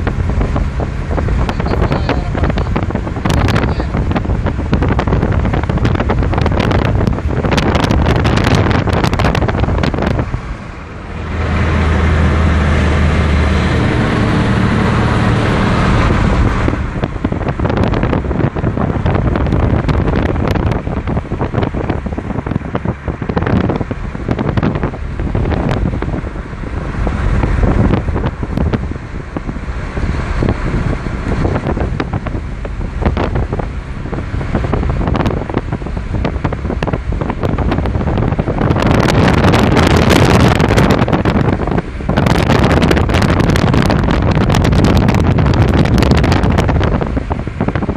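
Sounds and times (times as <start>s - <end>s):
car driving on road: 0.0s - 47.9s
wind buffeting microphone: 0.0s - 47.9s.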